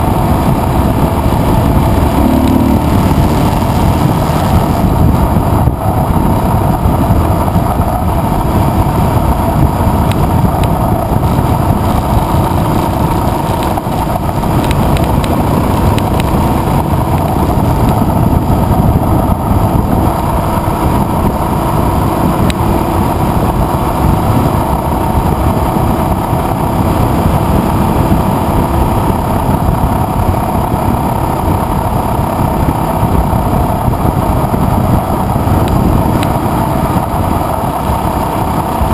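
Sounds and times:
motorcycle engine running: 0.0s - 38.9s
wind rushing on microphone: 0.0s - 38.9s.

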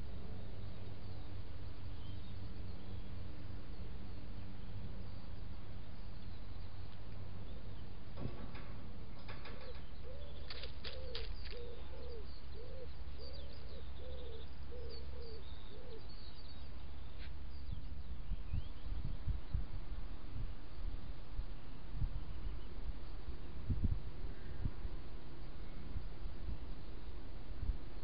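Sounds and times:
faint high songbird chirps: 0.0s - 8.3s, 9.1s - 28.0s
pigeon cooing: 9.4s - 16.1s.

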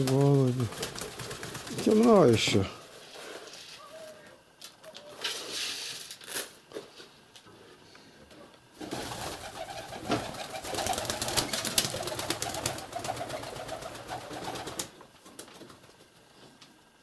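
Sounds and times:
pigeon wings fluttering: 0.0s - 2.7s, 8.8s - 16.2s
pigeons cooing: 8.8s - 14.9s.

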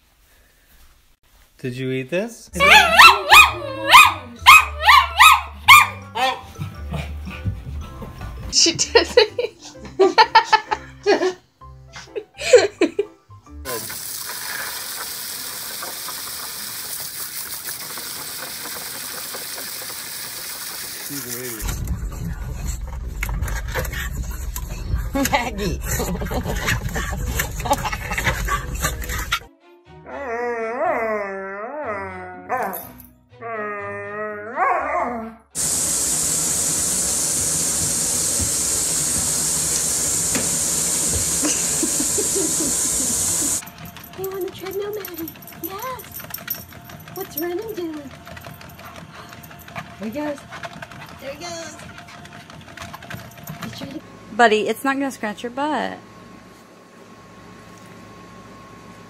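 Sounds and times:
dog howling: 2.6s - 6.5s, 30.1s - 32.7s
faucet running into bathtub: 13.7s - 21.6s
water jet spraying and splashing: 13.7s - 21.7s, 35.6s - 43.6s.

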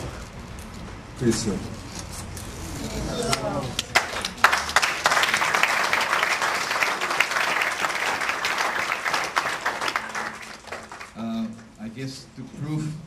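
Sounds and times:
audience applauding: 3.2s - 11.2s.

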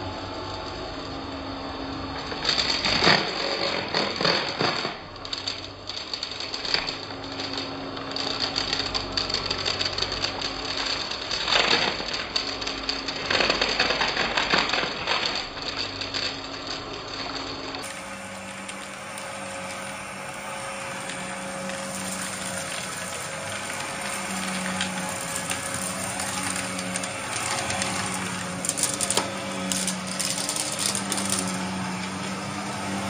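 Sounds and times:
debris crackling in vacuum: 2.5s - 33.0s
vacuum cleaner motor humming: 17.8s - 33.0s.

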